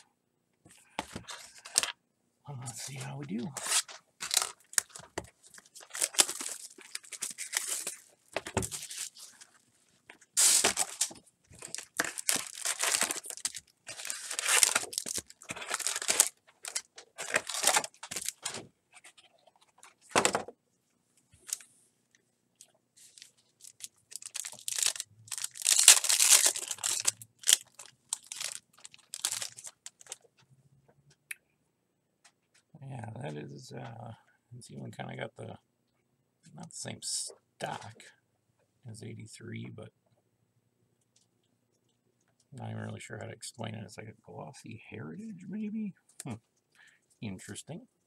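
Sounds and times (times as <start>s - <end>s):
foil packs crinkling and tearing: 2.8s - 9.6s, 10.3s - 18.6s, 23.0s - 30.2s.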